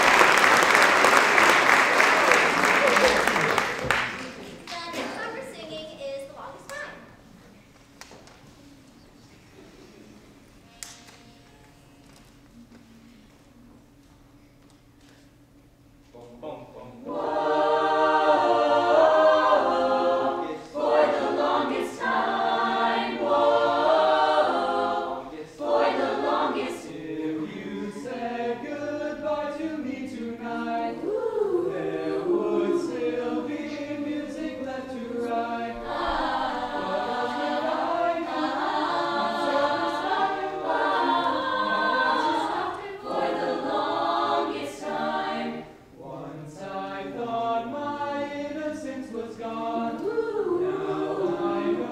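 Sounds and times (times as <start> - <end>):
choir singing unaccompanied: 16.9 - 51.9.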